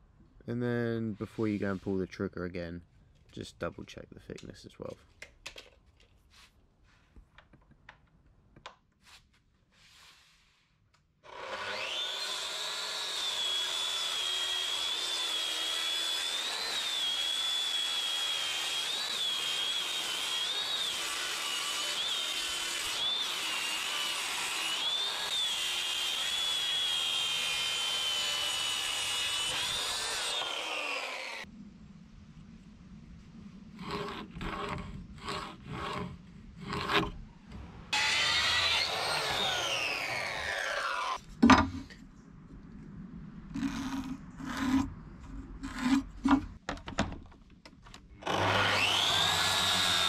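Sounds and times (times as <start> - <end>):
circular saw cutting wood: 11.2 - 31.5, 33.8 - 37.2, 37.9 - 41.2, 43.5 - 44.9, 45.5 - 46.4, 48.2 - 50.0.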